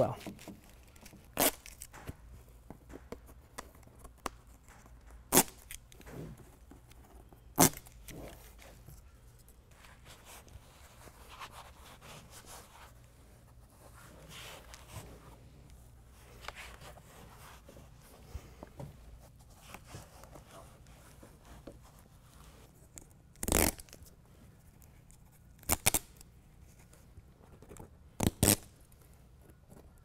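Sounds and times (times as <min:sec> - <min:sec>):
rustling handling: 0:00.0 - 0:25.5
adhesive liner ripping: 0:00.2 - 0:02.2, 0:03.5 - 0:06.2, 0:07.5 - 0:08.8, 0:22.9 - 0:24.1, 0:25.6 - 0:26.2, 0:28.2 - 0:28.9.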